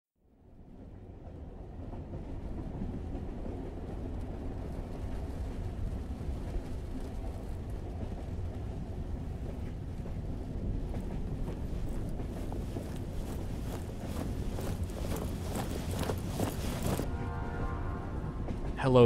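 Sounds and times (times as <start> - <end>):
moving train rumble: 0.5 - 19.0.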